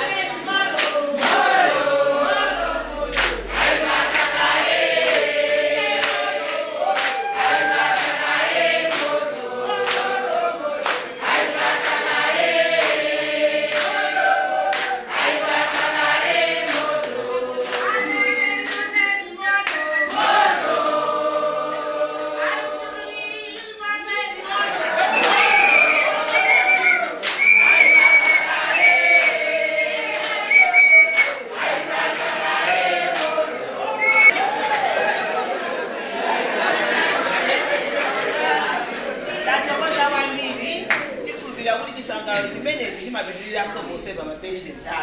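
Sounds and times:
people clapping hands: 0.0 - 22.0, 24.5 - 41.5, 42.3 - 42.6
group singing without instruments: 0.0 - 41.5.

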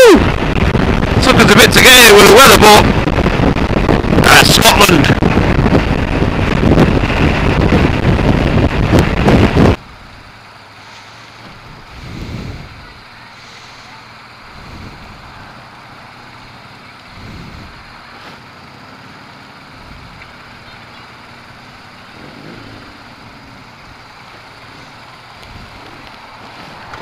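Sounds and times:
wind buffeting microphone: 0.0 - 10.3, 11.4 - 13.2, 14.4 - 15.7, 17.0 - 18.0
motorcycle low hum: 0.0 - 27.0.

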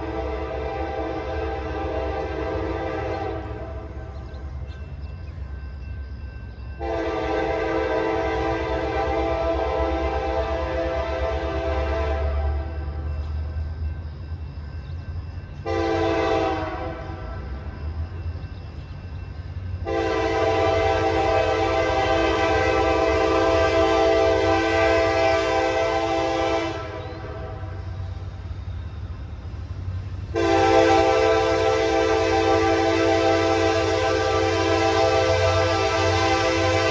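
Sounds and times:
train air horn blasts: 0.0 - 4.1, 6.8 - 13.0, 15.6 - 17.5, 19.8 - 28.0, 30.3 - 36.9
low train rumble: 0.0 - 36.9.

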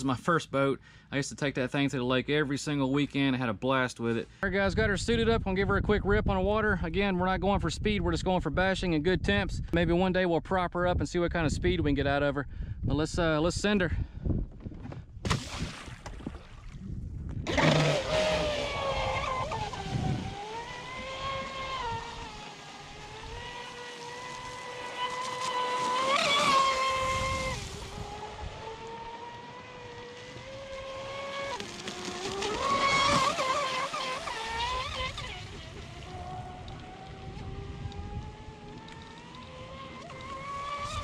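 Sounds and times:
boat splashing into water: 15.2 - 16.8, 17.4 - 37.3
model boat motor whining: 17.4 - 41.0.

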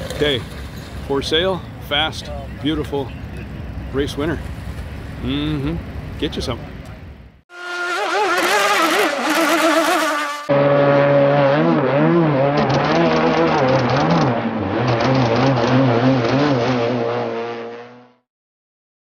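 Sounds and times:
model boat motor running: 7.6 - 10.4.

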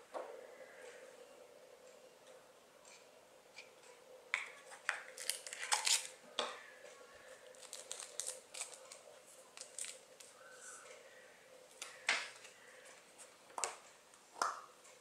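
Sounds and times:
faint steady hum: 0.0 - 15.0
paper crinkling: 4.8 - 6.2, 7.4 - 10.4.

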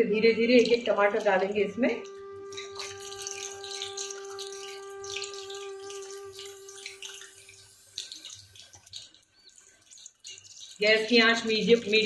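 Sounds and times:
steady humming tone: 0.0 - 8.8
hot oil sizzling and spitting: 2.4 - 12.0.

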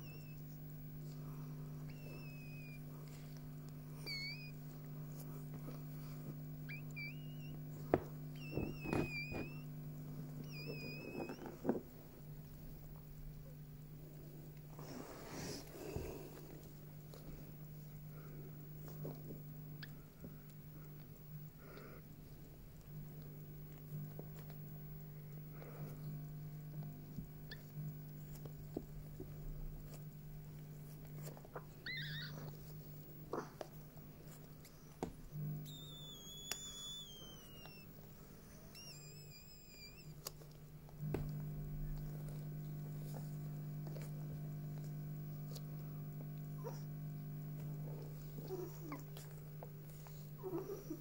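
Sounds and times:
puppies whimpering: 0.0 - 0.6, 1.8 - 4.6, 6.6 - 9.7, 10.4 - 11.8, 31.9 - 32.6, 35.6 - 40.4, 46.6 - 46.9, 47.9 - 51.0
steady low hum: 0.0 - 51.0.

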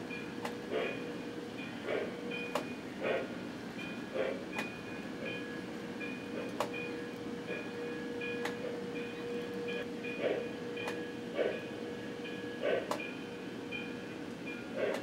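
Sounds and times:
model train running hum: 0.0 - 15.0
sharp track clicks: 0.4 - 0.9, 4.5 - 4.8, 8.4 - 8.7, 10.8 - 11.0.

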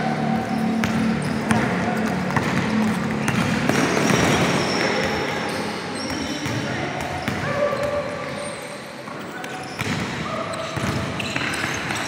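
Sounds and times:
hubbub of gym game: 0.0 - 12.0
basketball bouncing on court floor: 0.4 - 5.4, 6.0 - 8.0, 9.7 - 12.0.

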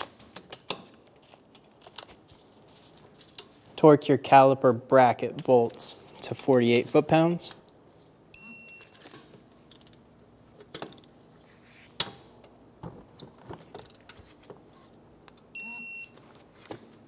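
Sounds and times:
torque wrench electronic beep: 15.6 - 16.1.

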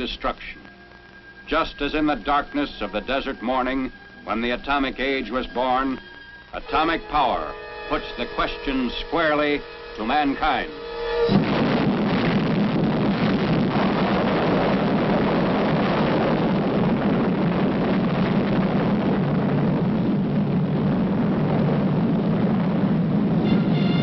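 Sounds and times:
loud low rumbling: 6.4 - 24.0.

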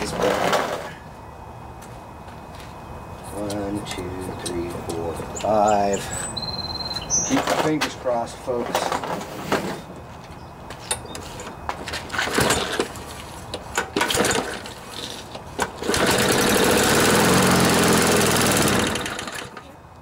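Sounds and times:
lawnmower engine running: 0.0 - 1.2, 11.8 - 19.8
recoil starter rope pulls: 12.1 - 13.0, 14.0 - 19.6.

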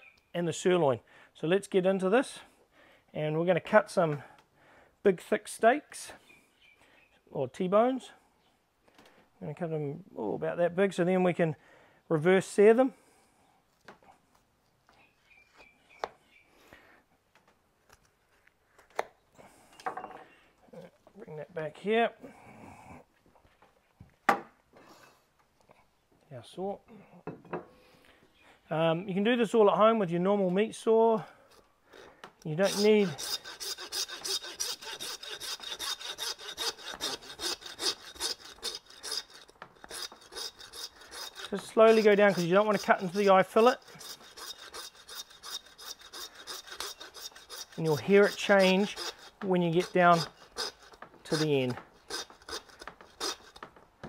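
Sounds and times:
faint bird chirps: 0.0 - 0.4, 6.2 - 7.2, 14.9 - 16.5
knife slicing meat: 32.6 - 53.6
hand saw cutting through bone: 32.6 - 53.7.

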